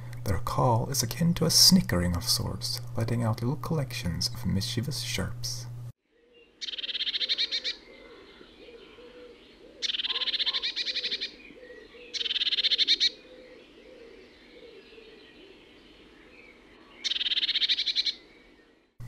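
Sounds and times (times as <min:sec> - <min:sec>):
bird snickering chirps: 0:09.8 - 0:11.3.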